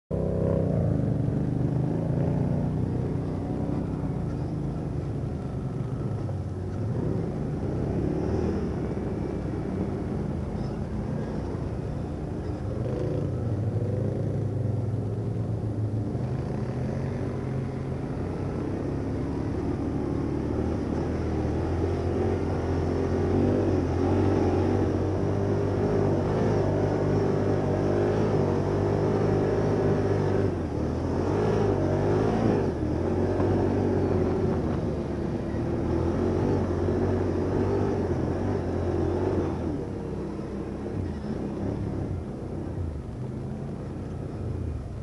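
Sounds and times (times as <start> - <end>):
quad bike engines: 0.1 - 45.0.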